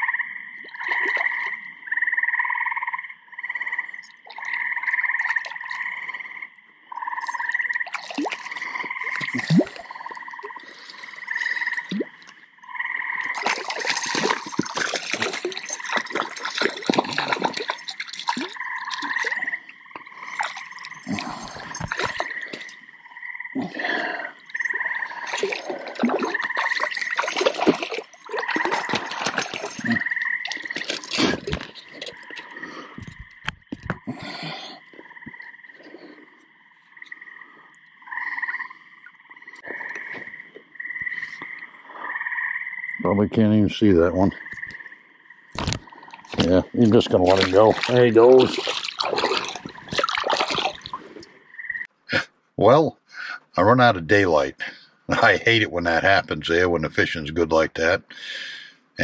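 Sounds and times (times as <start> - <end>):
frogs calling: 0.0 - 52.2
fish splashing in water: 0.6 - 1.6, 4.1 - 6.0, 7.0 - 12.5, 13.1 - 23.0, 23.6 - 34.6, 45.6 - 51.9.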